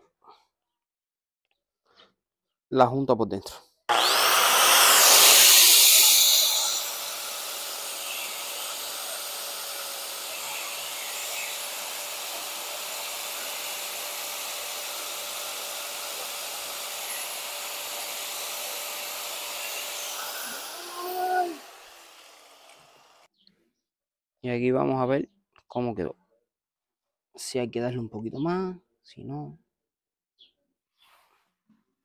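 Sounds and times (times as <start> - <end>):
angle grinder grinding: 3.9 - 23.3
angle grinder whining without load: 3.9 - 23.3.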